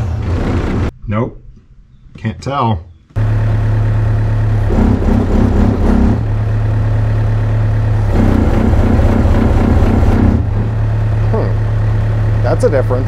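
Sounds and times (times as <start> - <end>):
diesel engine hum: 3.1 - 13.0
throbbing hydraulic pulse: 3.2 - 12.4.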